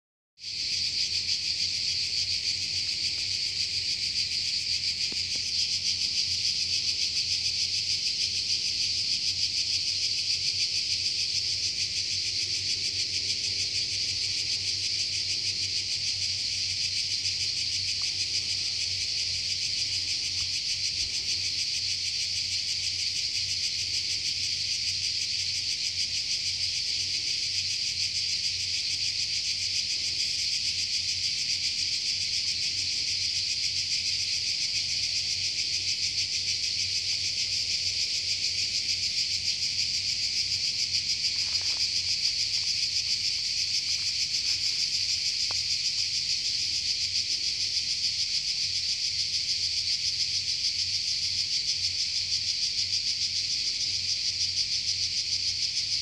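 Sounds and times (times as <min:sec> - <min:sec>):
cicadas buzzing: 0:00.4 - 0:56.0.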